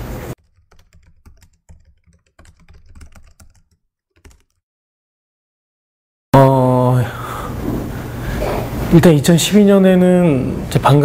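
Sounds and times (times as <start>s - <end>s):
keyboard typing clicks: 0.4s - 4.6s.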